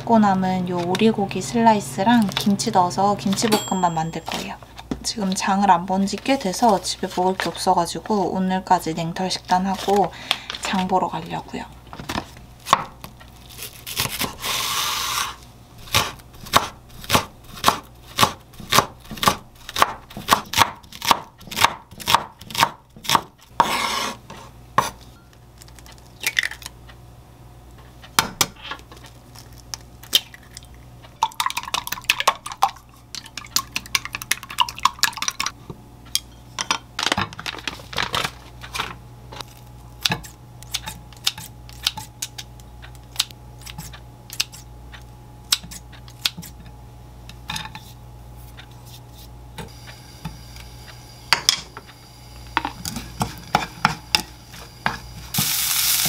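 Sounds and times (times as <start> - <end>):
knife chopping on wooden board: 12.7 - 13.0, 15.8 - 25.0.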